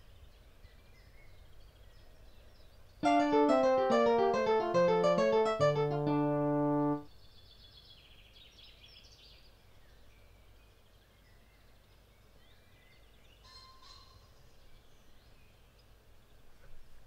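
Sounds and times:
piano chord: 3.0s - 7.1s.

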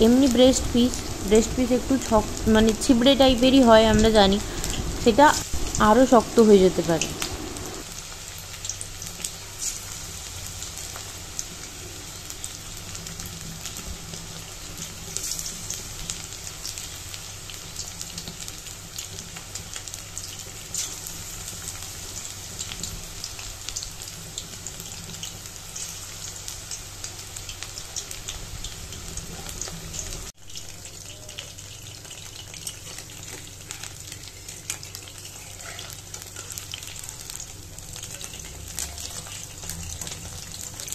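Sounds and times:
food deep-frying in hot oil: 0.0s - 40.9s.

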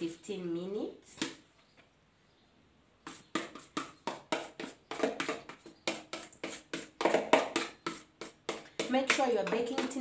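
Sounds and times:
spatula scraping plastic bowl: 3.0s - 10.0s.

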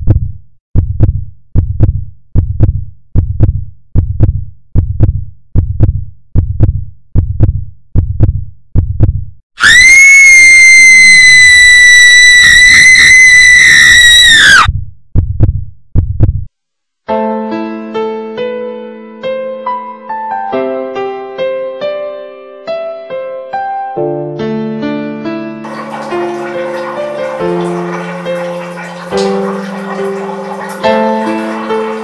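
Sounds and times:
heartbeat thumps: 0.0s - 9.4s, 14.7s - 16.5s
loud high shriek: 9.6s - 14.7s.

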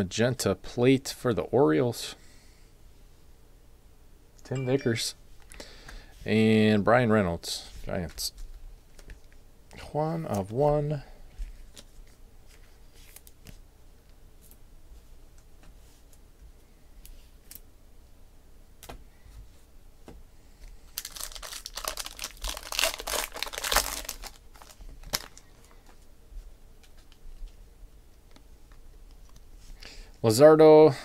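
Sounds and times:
foil wrapper crinkling and tearing: 21.0s - 25.8s.

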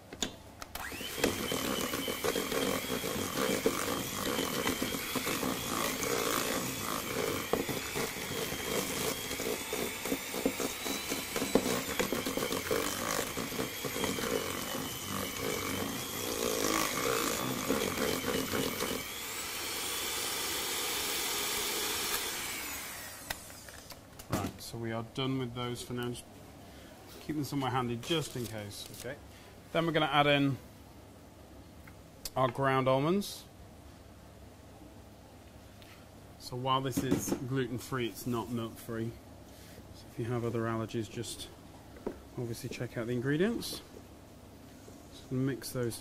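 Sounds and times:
electric hand mixer motor whine: 0.8s - 23.9s
beaters rattling in mixture: 1.1s - 22.1s.

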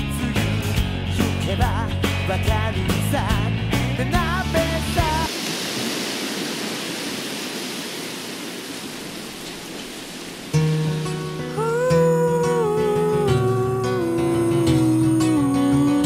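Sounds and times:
rock music with drums and bass: 0.0s - 5.3s
surf rushing: 4.4s - 11.7s.

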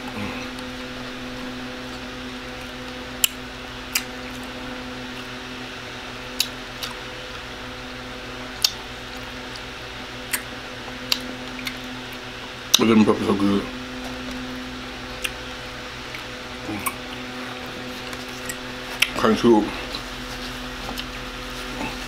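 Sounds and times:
steady low hum: 0.0s - 22.0s
crunchy chewing: 6.3s - 7.5s, 15.0s - 22.0s.

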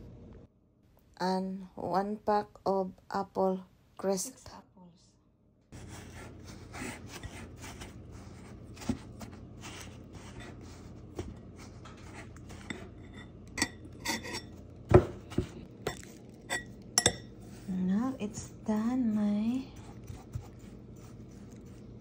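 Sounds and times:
fork scraping and clicking on glass: 12.4s - 14.6s.

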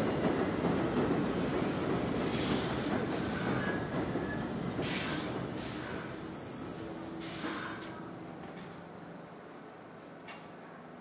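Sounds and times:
subway train wheels rumbling: 0.0s - 11.0s
high wheel squeal: 3.0s - 8.2s
short high screeches: 4.2s - 8.2s.

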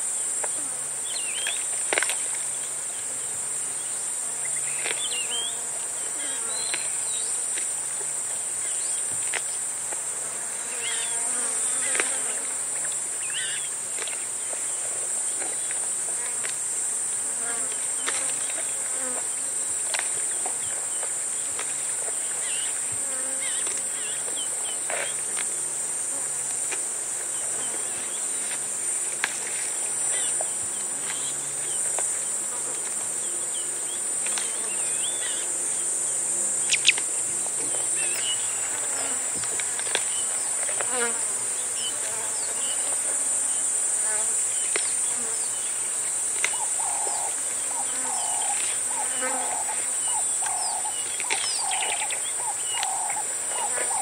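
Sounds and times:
cicada chorus: 0.0s - 54.0s
flies buzzing: 0.2s - 54.0s
bird chirps: 36.6s - 37.0s.

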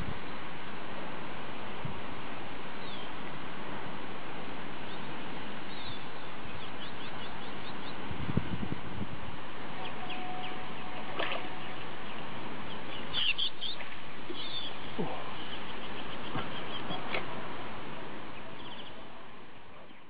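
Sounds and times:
outdoor background noise: 0.0s - 20.0s
high short bird chirps: 12.7s - 17.1s.

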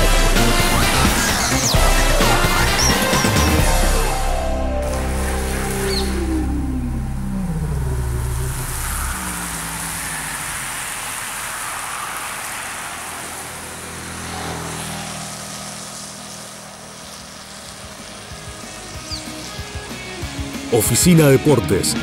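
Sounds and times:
vehicle engine passing by: 0.0s - 19.8s
tyres hissing on wet road: 8.1s - 20.8s.

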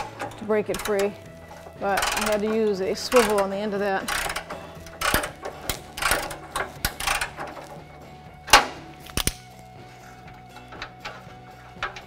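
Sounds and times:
ratchet clicking: 0.0s - 7.8s, 8.5s - 12.0s.

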